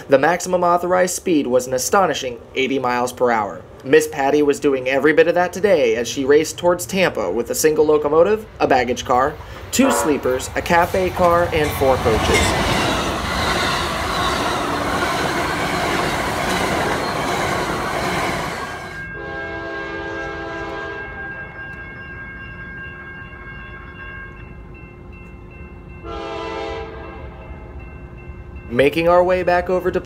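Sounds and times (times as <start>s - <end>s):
train wheels roaring on rail: 9.3s - 21.8s
distant locomotive horn: 9.7s - 15.3s, 16.9s - 21.6s, 26.0s - 27.4s.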